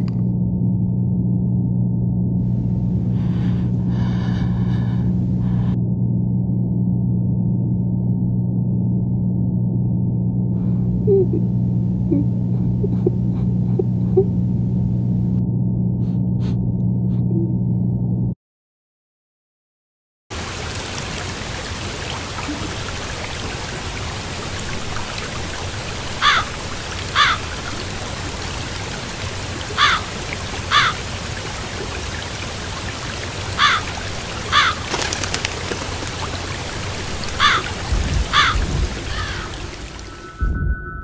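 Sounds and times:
rushing water: 20.3 - 40.3.

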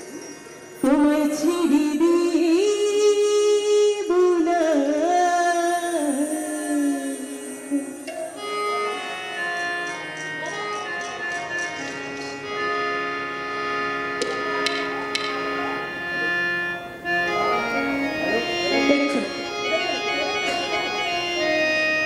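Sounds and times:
held instrumental notes: 6.1 - 22.0.

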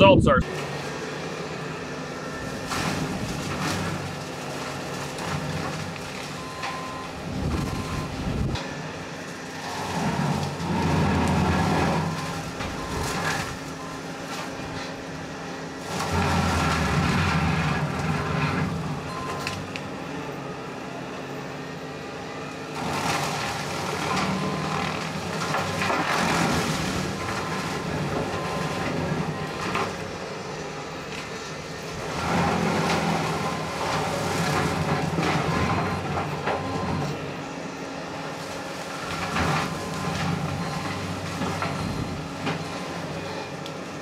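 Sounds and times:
diesel engine and brush mower drone: 0.0 - 44.0
mower crunching and cracking brush: 2.3 - 15.2, 15.8 - 20.0, 22.6 - 30.2, 31.0 - 37.2, 38.2 - 44.0.

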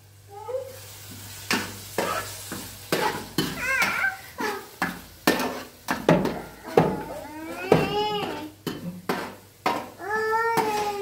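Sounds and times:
utensil scraping in a pot: 8.2 - 9.9.

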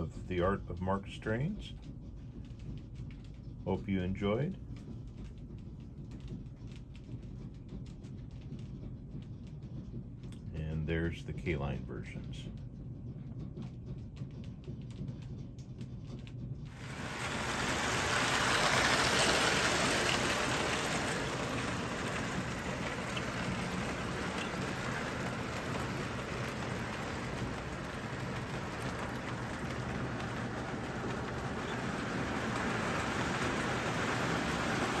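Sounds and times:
toy train wheels rattling on rails: 16.7 - 35.0.

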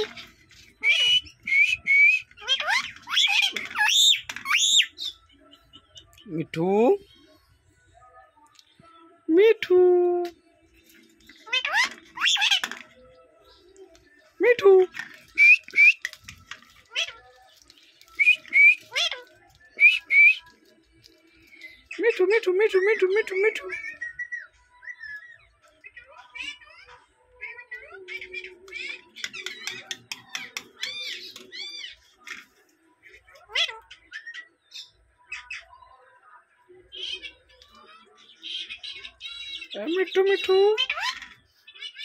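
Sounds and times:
parakeet whistled calls: 0.8 - 5.2.

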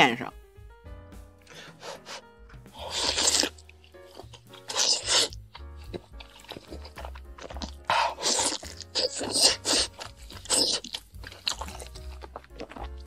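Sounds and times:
quiet background music: 0.0 - 13.0
noodles being slurped: 2.8 - 13.0.

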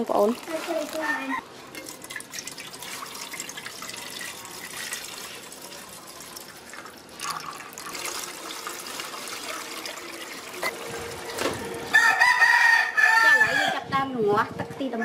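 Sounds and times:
liquid trickling into metal pot: 0.2 - 11.8.

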